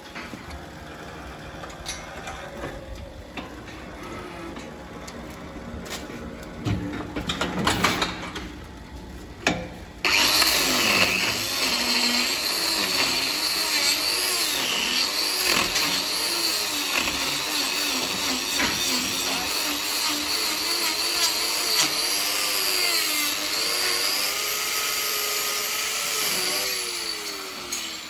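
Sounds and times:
angle grinder grinding hoof: 10.0s - 28.0s.

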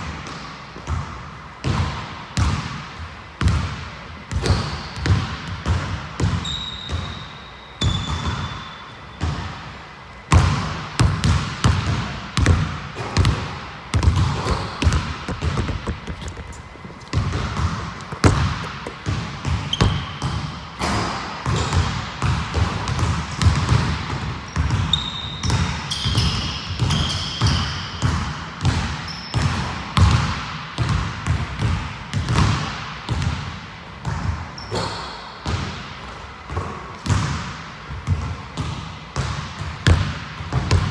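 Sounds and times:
sneaker squeaks: 4.3s - 5.3s, 6.2s - 9.5s, 13.0s - 21.8s, 24.4s - 28.2s, 28.9s - 29.7s, 34.5s - 35.3s
basketball bouncing on wood floor: 10.3s - 34.4s, 36.5s - 40.9s.

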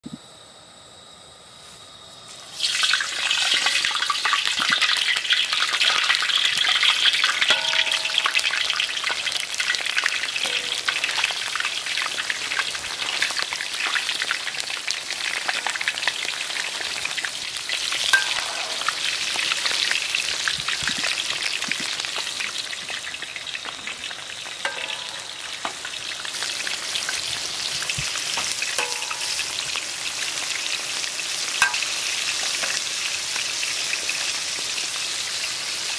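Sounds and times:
fruit sizzling in hot oil: 2.3s - 35.9s
metal spatula stirring: 18.1s - 19.0s, 24.6s - 25.9s, 28.8s - 29.6s.

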